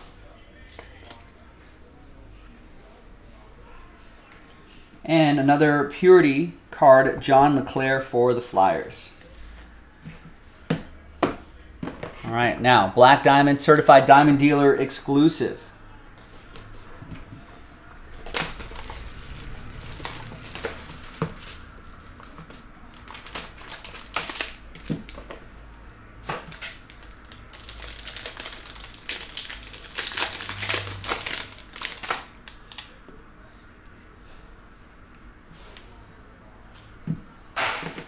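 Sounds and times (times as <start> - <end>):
plastic wrap crinkling: 18.1 - 25.3, 26.3 - 33.0
plastic wrap tearing: 18.1 - 25.3, 26.4 - 33.0.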